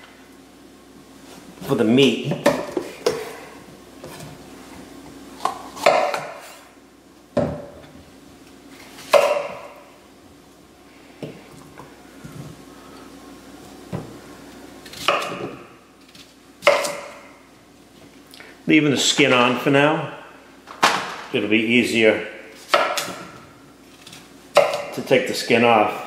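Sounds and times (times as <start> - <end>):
knife chopping on wooden board: 5.4 - 6.5, 9.1 - 9.8, 14.9 - 15.6, 16.6 - 17.3, 22.7 - 23.4, 24.6 - 25.1.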